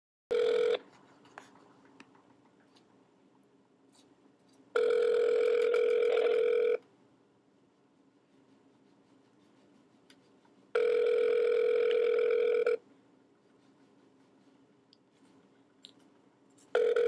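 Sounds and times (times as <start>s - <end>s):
telephone ringback tone: 0.3s - 0.8s, 4.8s - 6.8s, 10.8s - 12.8s, 16.8s - 17.0s.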